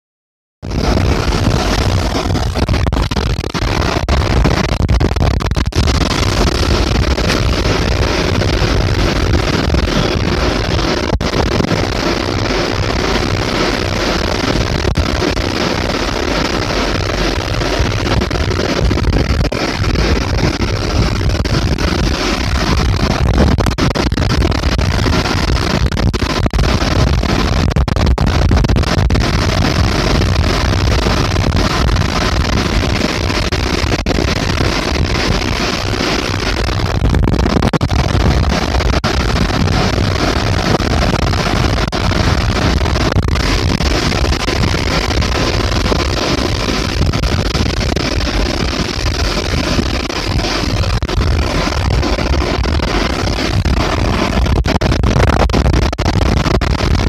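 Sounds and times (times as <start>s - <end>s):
ship engine rumble: 0.6s - 33.4s
wind on microphone: 0.6s - 57.0s
churning wake against hull: 0.7s - 56.4s.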